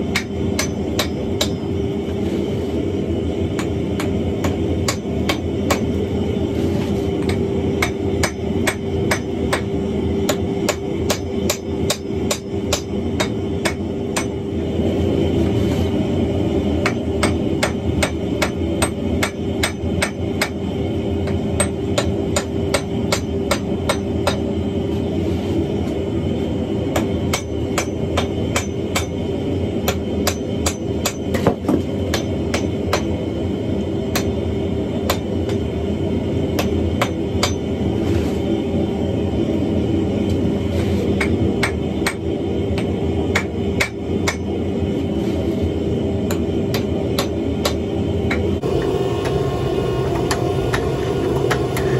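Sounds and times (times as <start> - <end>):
hammer striking iron on anvil: 0.0 - 1.7, 3.5 - 6.0, 7.2 - 14.4, 16.8 - 20.6, 21.2 - 24.5, 26.9 - 29.2, 29.8 - 33.2, 34.1 - 34.4, 36.6 - 37.7, 41.2 - 42.2, 42.8 - 44.6, 46.3 - 49.5, 50.1 - 51.9
steady low drone: 31.9 - 51.9.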